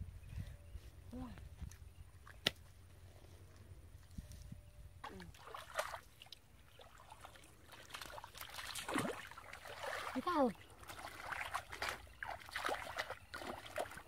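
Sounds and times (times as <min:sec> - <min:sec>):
hands sloshing in muddy water: 0:05.0 - 0:14.0.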